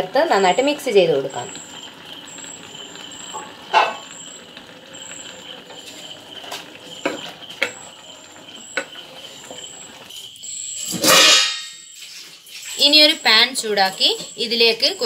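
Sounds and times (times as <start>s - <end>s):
spoon knocking clay pot: 5.8s - 8.0s.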